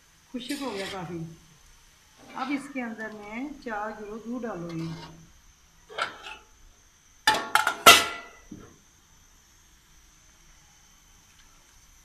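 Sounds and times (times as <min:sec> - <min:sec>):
pot lid clanking on metal: 0:05.9 - 0:06.4, 0:07.3 - 0:08.4.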